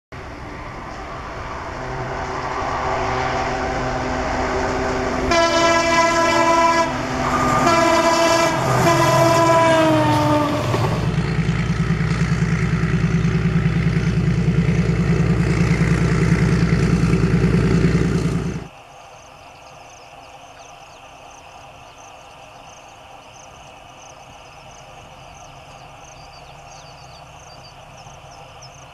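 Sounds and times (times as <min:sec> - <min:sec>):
diesel locomotive engine: 0:00.1 - 0:28.9
locomotive horn blasts: 0:01.7 - 0:11.0.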